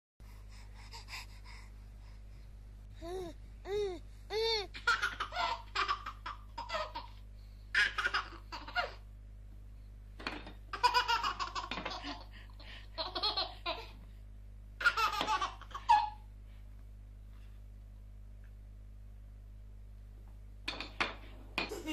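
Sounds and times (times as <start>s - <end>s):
baby laughing: 4.3s - 9.0s, 10.7s - 14.0s, 14.8s - 16.2s.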